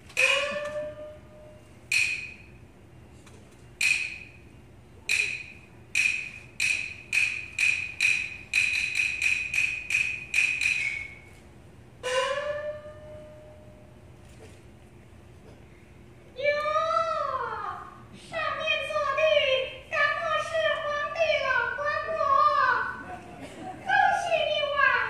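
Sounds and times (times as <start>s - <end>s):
sharp ringing percussion strikes: 12.0s - 13.8s.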